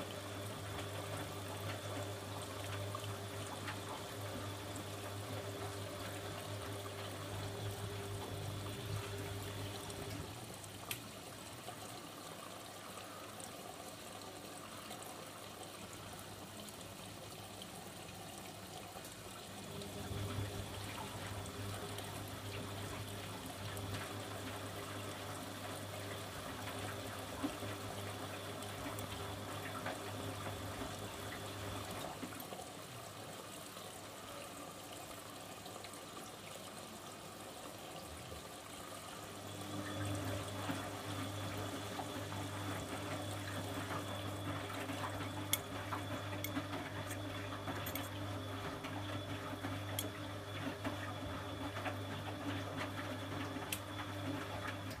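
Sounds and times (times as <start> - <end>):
wet laundry sloshing in drum: 0.0 - 10.6, 19.6 - 32.7, 39.3 - 55.0
washing machine motor hum: 0.0 - 13.2, 14.4 - 33.7, 38.0 - 55.0.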